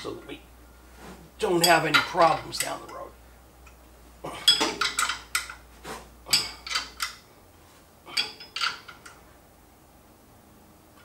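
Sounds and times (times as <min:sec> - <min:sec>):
wrench clinking on bolts: 0:04.5 - 0:05.6, 0:06.3 - 0:07.2, 0:08.1 - 0:09.2.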